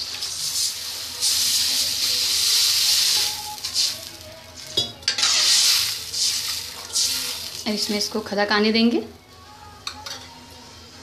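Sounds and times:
water sizzling in hot pan: 0:00.0 - 0:08.2
spoon stirring: 0:02.9 - 0:07.6.

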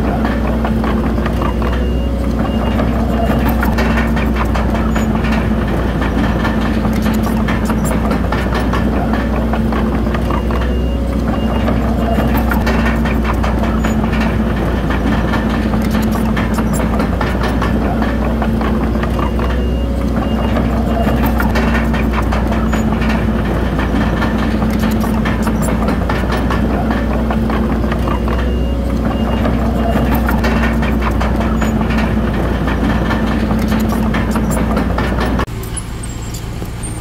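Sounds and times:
bulldozer diesel engine running: 0:00.0 - 0:37.0
steel tracks clattering: 0:00.0 - 0:37.0
reversing alarm beeping: 0:01.4 - 0:04.1, 0:10.3 - 0:13.0, 0:19.2 - 0:21.9, 0:28.0 - 0:30.8.

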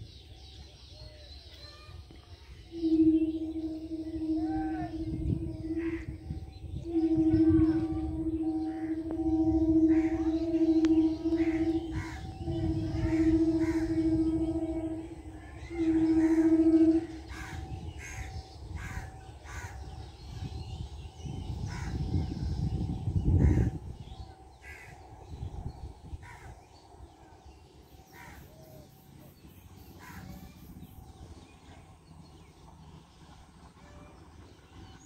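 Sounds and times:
wind rumbling on microphone: 0:02.0 - 0:35.0
train horn: 0:02.6 - 0:26.6.

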